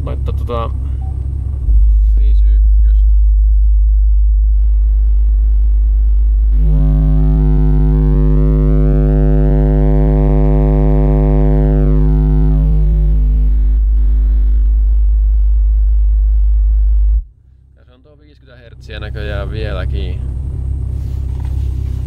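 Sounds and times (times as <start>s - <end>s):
subwoofer low test tone: 0.0s - 17.5s
harsh buzz: 1.6s - 17.3s.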